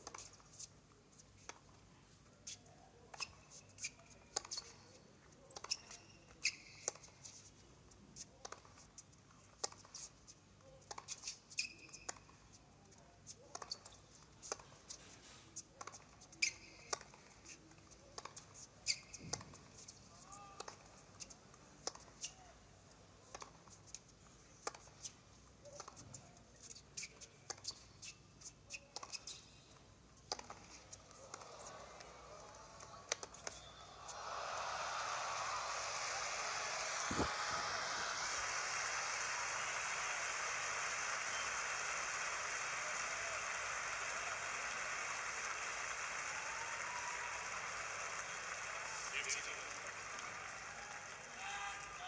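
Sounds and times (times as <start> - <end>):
shoes squeaking on court: 2.5 - 7.5, 10.9 - 12.5, 13.4 - 17.6, 18.3 - 20.0, 24.7 - 31.9, 33.1 - 33.9
rackets hitting tennis ball: 30.3 - 41.4.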